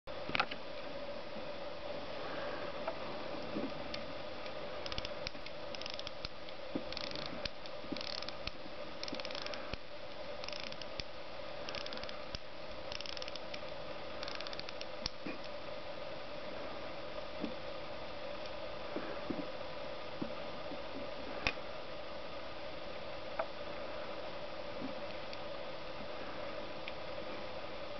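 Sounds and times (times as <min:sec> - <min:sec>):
steady low hum: 0:00.1 - 0:27.9
watch winding clicks: 0:04.8 - 0:09.8, 0:10.4 - 0:11.1, 0:11.7 - 0:13.6, 0:14.2 - 0:15.2.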